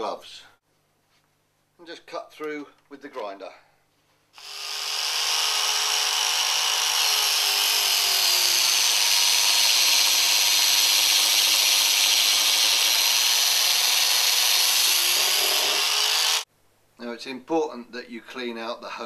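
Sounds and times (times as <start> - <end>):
angle grinder cutting hose: 4.4 - 16.5.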